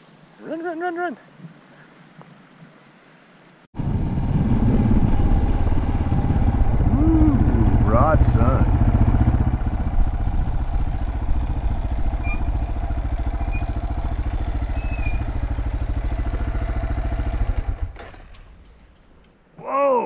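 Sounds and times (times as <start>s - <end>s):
dirt bike engine running: 3.8s - 18.8s.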